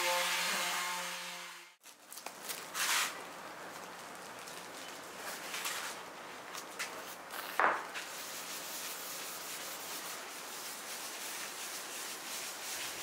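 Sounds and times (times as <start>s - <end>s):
short plastic rustles: 1.8s - 8.1s
gloved hand rubbing wax on wood: 8.0s - 13.0s.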